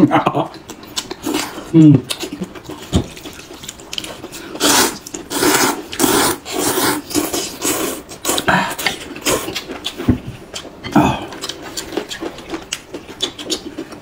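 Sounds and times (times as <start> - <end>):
people slurping noodles: 4.4 - 9.7.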